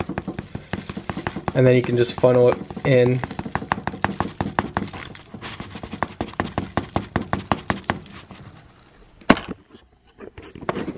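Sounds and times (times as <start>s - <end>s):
quick light tapping on paper plate: 0.0s - 8.2s.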